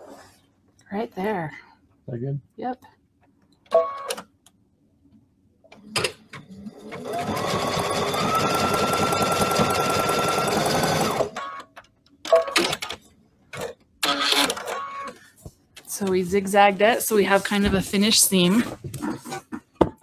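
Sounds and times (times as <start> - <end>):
sewing machine stitching: 6.0 - 11.4.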